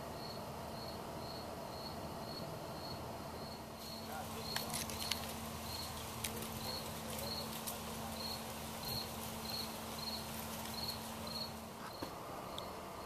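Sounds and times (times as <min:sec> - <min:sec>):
cricket chirping: 0:00.1 - 0:13.0.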